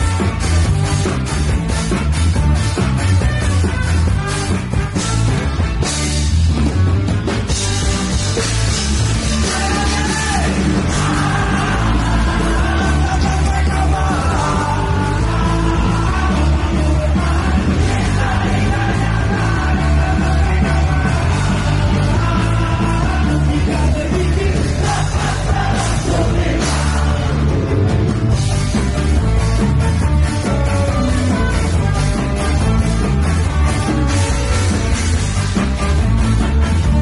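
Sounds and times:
trombone: 0.0 - 10.1, 31.0 - 37.0
ska band playing live: 0.0 - 37.0.

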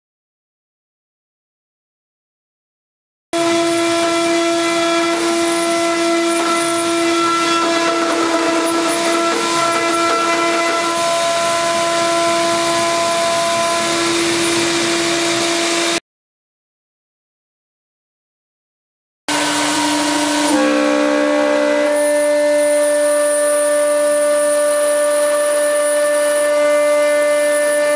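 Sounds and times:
spindle whine cutting metal: 3.4 - 16.0, 19.3 - 27.9.

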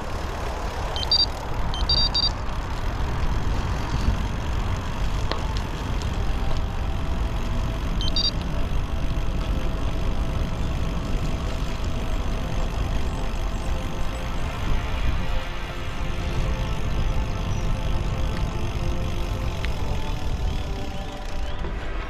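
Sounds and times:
tyre noise on path: 0.0 - 22.0
wind rumbling on microphone: 0.0 - 22.0
short high beep: 1.0 - 2.3, 8.0 - 8.3.

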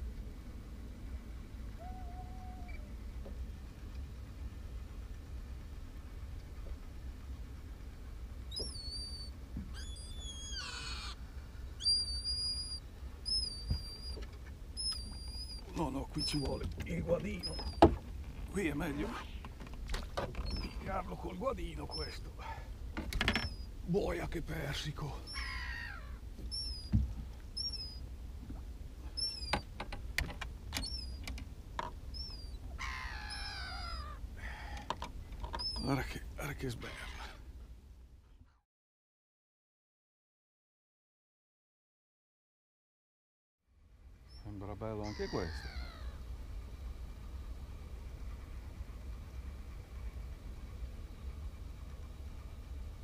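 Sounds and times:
descending bird call: 1.7 - 3.1, 8.4 - 17.9, 20.4 - 23.8, 24.5 - 28.0, 29.1 - 29.7, 30.8 - 31.4, 32.1 - 37.5, 44.2 - 46.3
bird whistled calls: 8.5 - 11.2, 11.8 - 14.2, 14.8 - 16.4, 23.3 - 23.7, 25.3 - 27.0, 27.6 - 28.0, 29.2 - 29.6, 30.8 - 31.2, 32.1 - 34.2, 35.6 - 35.9
harsh bird call: 8.5 - 11.2, 11.8 - 14.2, 25.2 - 26.9, 32.2 - 34.9, 36.8 - 37.5, 44.3 - 46.2.

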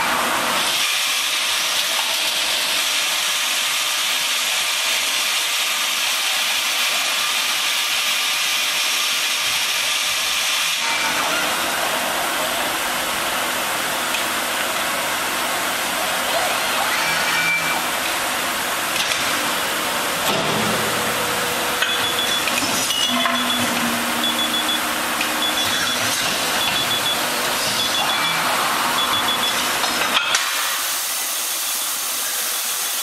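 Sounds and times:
hissing machine noise: 0.0 - 33.0
short high beeps: 21.8 - 28.4, 29.0 - 29.6.

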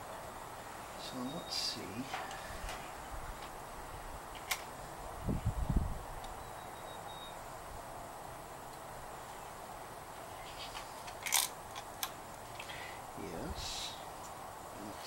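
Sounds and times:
faint steady hiss: 0.0 - 15.0
metal housing clicks and clatter: 11.0 - 12.7.

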